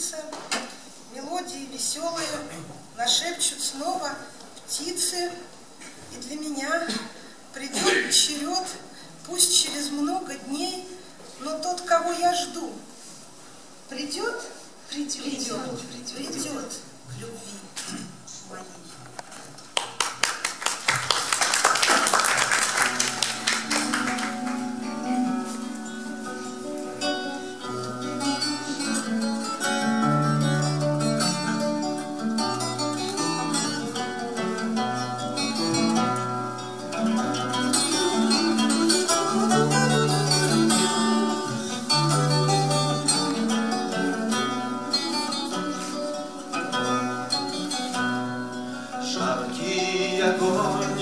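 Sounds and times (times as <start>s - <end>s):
acoustic guitars strumming: 21.1s - 51.0s.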